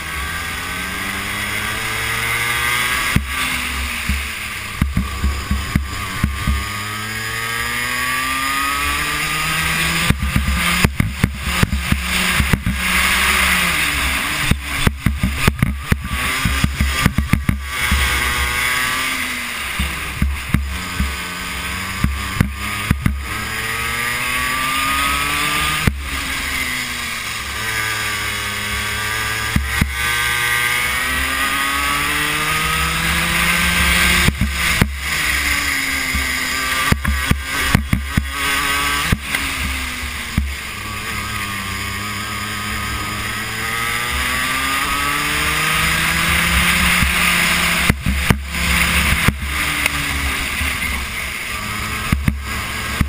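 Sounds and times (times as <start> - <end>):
kart engine revving: 0.0 - 53.0
sharp knocks and thumps: 4.0 - 7.0, 9.9 - 13.0, 14.4 - 18.2, 19.8 - 21.3, 22.0 - 24.0, 29.4 - 30.3, 32.3 - 40.6, 45.5 - 50.1, 52.1 - 53.0.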